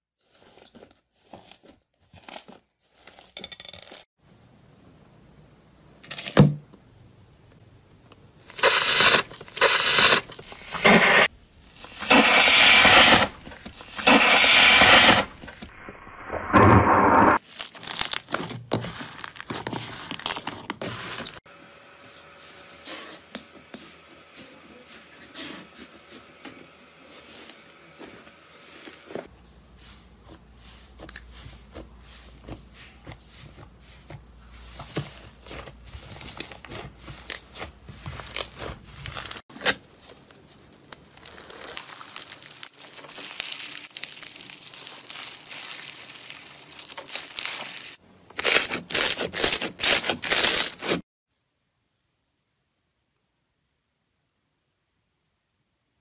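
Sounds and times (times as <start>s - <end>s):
slime crackling and popping: 17.4s - 18.4s, 40.8s - 50.7s
loud slime squishes: 17.4s - 21.4s, 41.0s - 51.0s.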